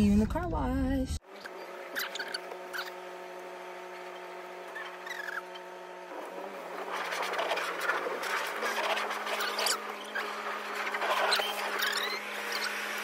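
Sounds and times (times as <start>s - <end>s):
faint short squeaks: 1.4s - 3.0s, 4.7s - 5.7s, 11.1s - 12.8s
pressure washer spraying car: 6.1s - 13.0s.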